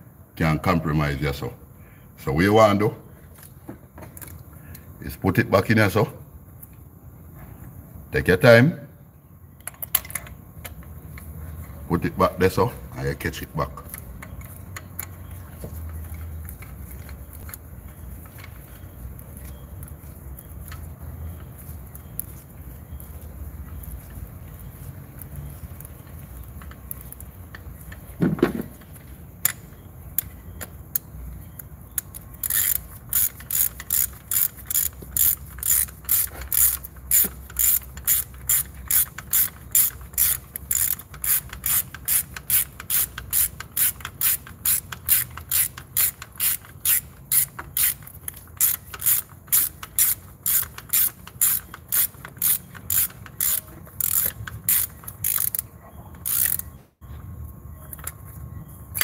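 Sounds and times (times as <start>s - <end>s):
ratchet wrench clicking: 9.6s - 11.3s, 13.3s - 18.8s, 23.0s - 28.1s, 28.9s - 56.8s.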